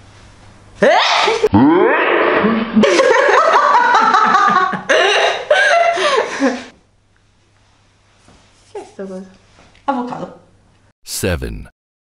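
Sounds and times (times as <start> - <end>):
woman laughing hard: 2.8 - 6.7.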